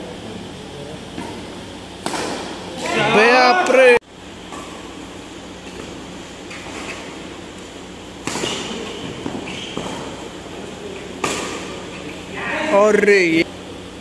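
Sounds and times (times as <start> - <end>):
room noise hiss: 0.0 - 14.0
racket hitting shuttlecock: 1.2 - 3.1, 4.5 - 12.1.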